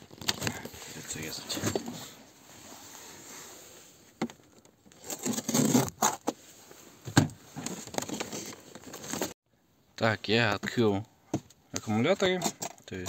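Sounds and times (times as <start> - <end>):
knife cutting packaging: 5.0 - 6.2.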